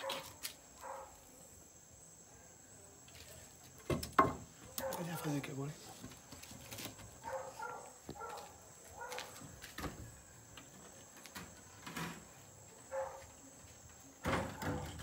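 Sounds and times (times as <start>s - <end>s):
wooden door knocks and creaks: 3.8s - 4.5s.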